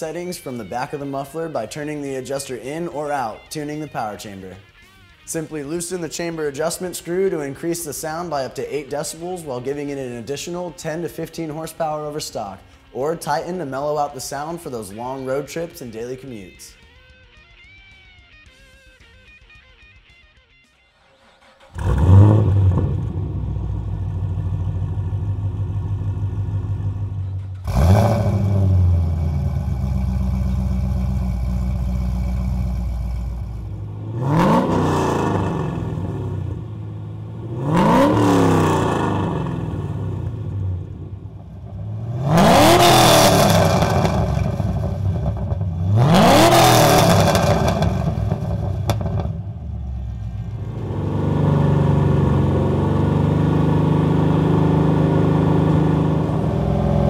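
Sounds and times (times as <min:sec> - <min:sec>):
car engine idling and revving: 0:21.0 - 0:57.0.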